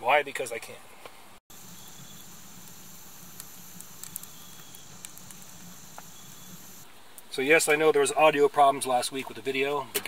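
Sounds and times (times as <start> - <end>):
wood fire crackling: 1.5 - 7.8.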